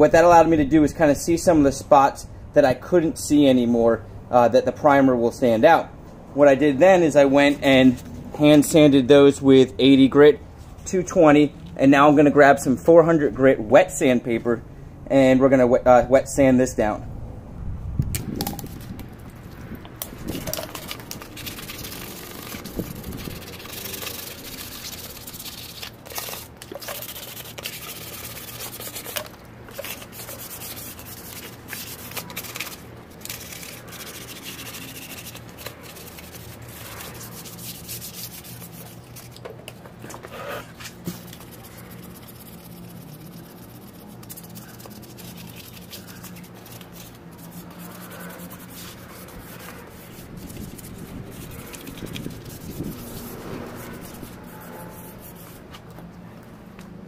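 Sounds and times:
wet sandpaper rubbing metal: 0:20.0 - 0:39.4, 0:40.3 - 0:55.8.

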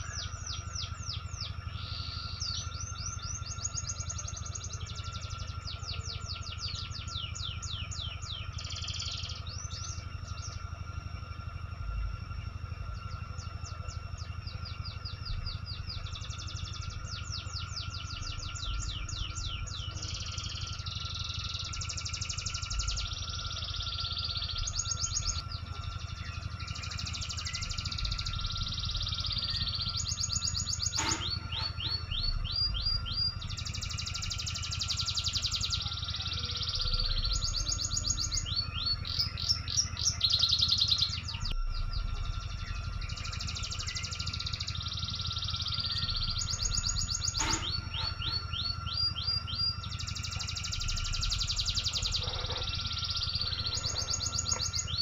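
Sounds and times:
high buzzy bird trills: 0:00.0 - 0:55.0
rising bird chirps: 0:00.0 - 0:55.0
steady low hum: 0:00.0 - 0:55.0.

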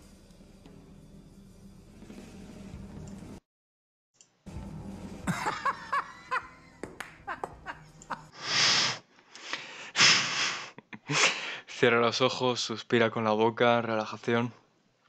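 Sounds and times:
man chuckling: 0:05.2 - 0:08.4.

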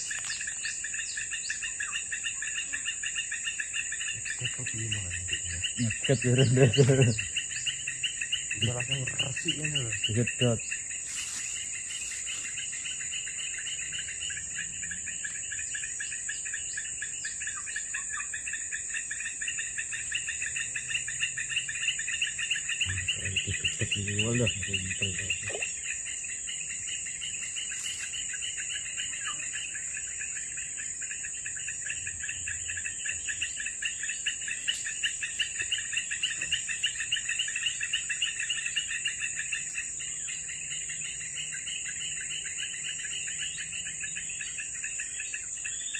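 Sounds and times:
fast pulsing insect trill: 0:00.0 - 0:45.9
high-pitched insect drone: 0:00.0 - 0:45.9.

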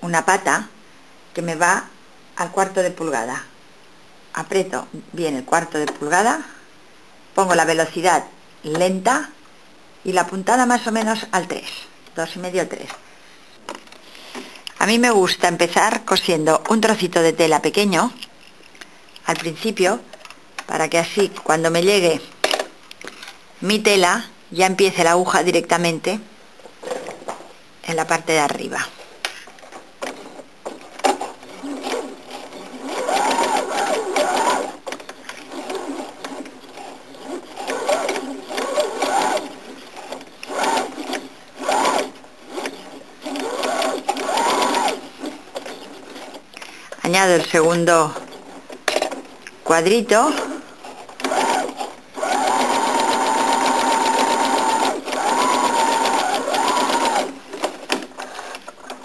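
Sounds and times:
sewing machine motor whirring: 0:31.4 - 0:34.8, 0:35.5 - 0:46.4, 0:51.2 - 0:57.4.

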